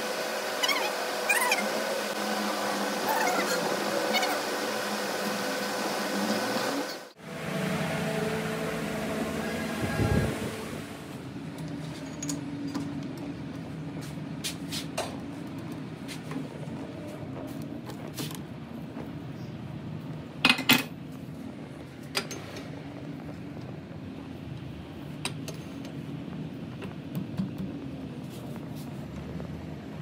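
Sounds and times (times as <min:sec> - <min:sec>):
steady low hum: 0:07.1 - 0:30.0.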